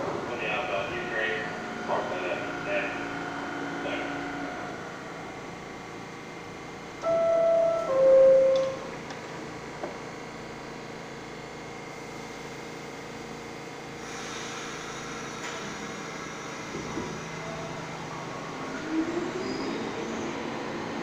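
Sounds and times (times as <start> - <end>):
train humming: 0.0 - 21.0.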